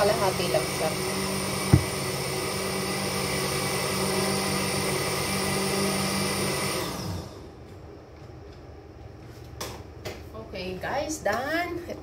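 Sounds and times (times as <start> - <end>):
electric blender running: 0.0 - 7.5.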